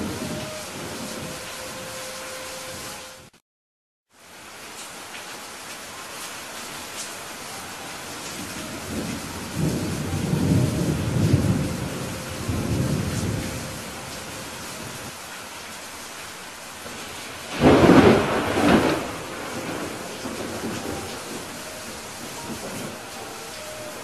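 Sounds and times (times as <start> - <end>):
low thunder rumbling: 0.0 - 2.0, 8.0 - 15.1, 16.8 - 24.0
steady rain hissing: 0.0 - 3.3, 4.1 - 24.0
sharp thunderclap: 16.8 - 21.5.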